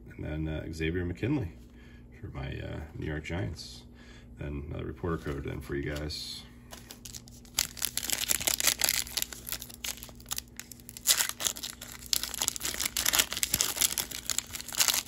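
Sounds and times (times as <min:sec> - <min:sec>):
foil wrapper crinkling and tearing: 0:06.7 - 0:15.0.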